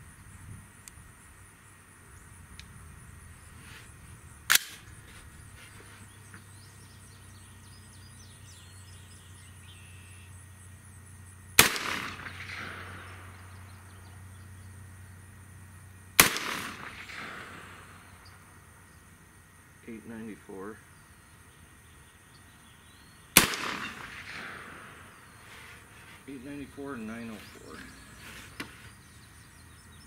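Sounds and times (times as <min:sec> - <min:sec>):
rifle shots: 0:04.5 - 0:04.9, 0:11.6 - 0:13.7, 0:16.2 - 0:18.2, 0:23.3 - 0:27.9
gunshot echo: 0:11.6 - 0:13.7, 0:16.2 - 0:18.2, 0:23.4 - 0:25.7.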